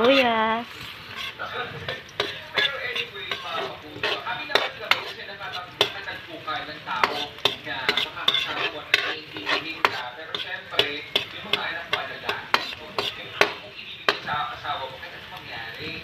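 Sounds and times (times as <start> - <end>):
metal spatula scraping a wok: 0.0 - 15.2
garlic and onion sizzling in oil: 0.0 - 16.0.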